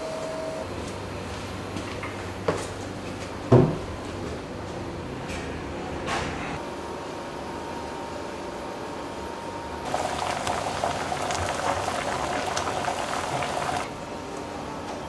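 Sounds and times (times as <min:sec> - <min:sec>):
sauce bubbling and popping: 0:09.9 - 0:13.9.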